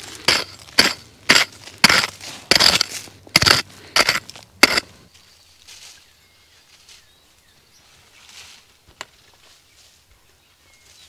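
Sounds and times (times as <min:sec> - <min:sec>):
loud crunches: 0:00.0 - 0:05.0
faint bird chirps: 0:09.5 - 0:11.0.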